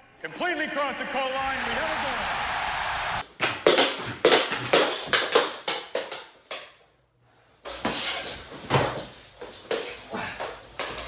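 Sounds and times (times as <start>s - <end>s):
hockey sticks clacking: 3.2s - 6.8s.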